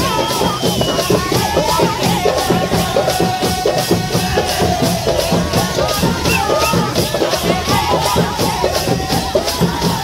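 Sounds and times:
drums playing fast beat: 0:00.0 - 0:10.0.

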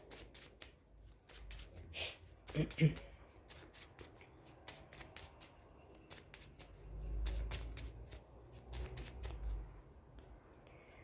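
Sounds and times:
playing cards shuffling: 0:06.1 - 0:09.7.

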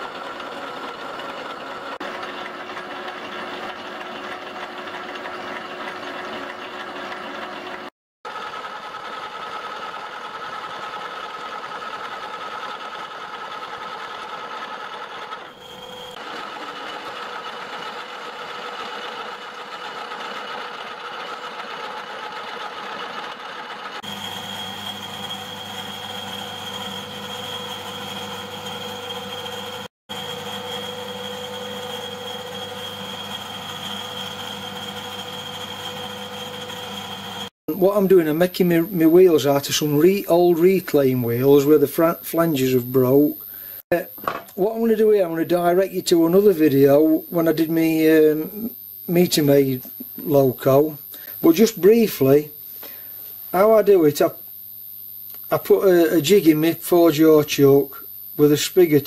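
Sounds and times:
metal lathe cutting steel: 0:00.0 - 0:43.4, 0:44.6 - 0:52.5.

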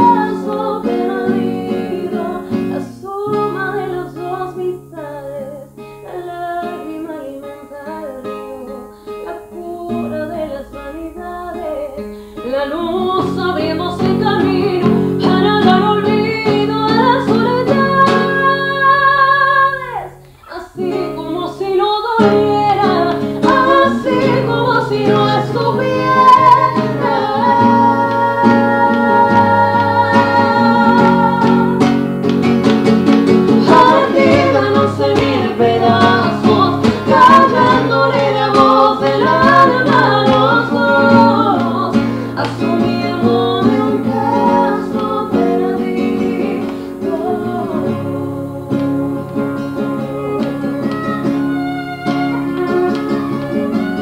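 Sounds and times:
acoustic guitar: 0:00.0 - 0:54.0
person singing folk song: 0:00.0 - 0:54.0.

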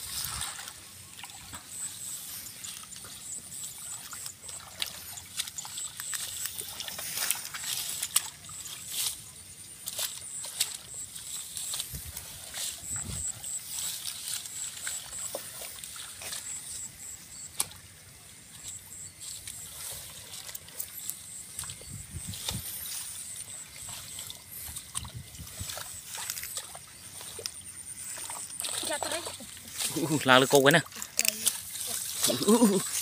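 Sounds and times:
faint high-pitched chirping: 0:00.7 - 0:33.0
hands splashing in muddy water: 0:19.2 - 0:30.3.

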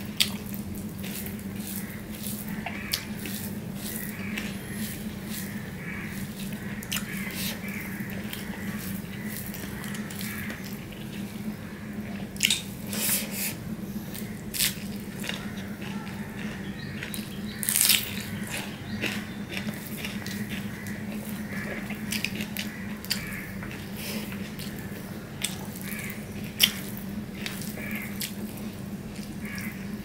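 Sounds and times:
steady low hum: 0:00.0 - 0:30.0
chewing and lip smacks: 0:14.6 - 0:24.8, 0:25.4 - 0:29.4.

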